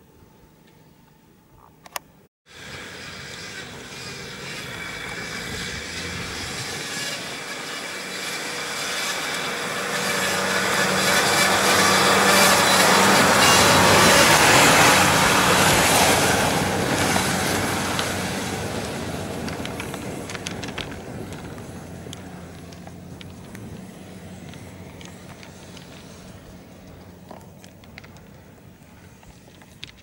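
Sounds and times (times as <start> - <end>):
engine working hard: 2.5 - 30.0
tyre and mud noise: 2.6 - 30.0.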